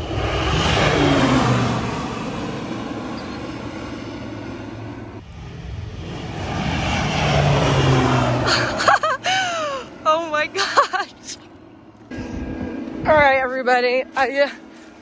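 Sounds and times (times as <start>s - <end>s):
airplane engine drone passing: 0.0s - 15.0s.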